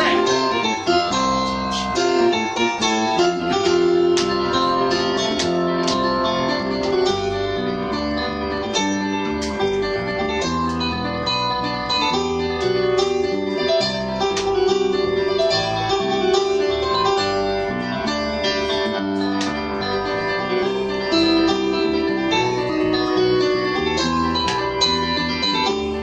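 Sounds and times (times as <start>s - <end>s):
electric bass guitar: 0.0s - 26.0s
keyboard piano: 0.0s - 26.0s.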